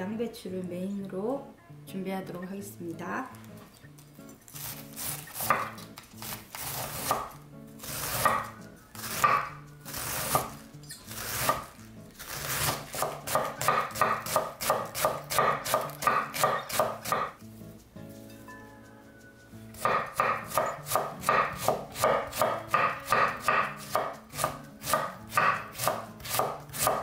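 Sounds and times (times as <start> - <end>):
knife cutting cabbage on board: 4.5 - 17.4, 19.7 - 27.0.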